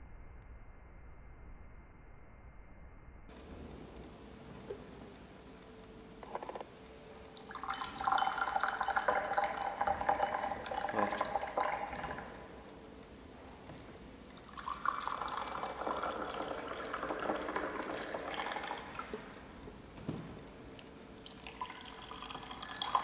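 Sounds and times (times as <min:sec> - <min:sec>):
coffee pouring into glass: 0:07.4 - 0:12.6, 0:14.3 - 0:19.4, 0:21.2 - 0:23.0.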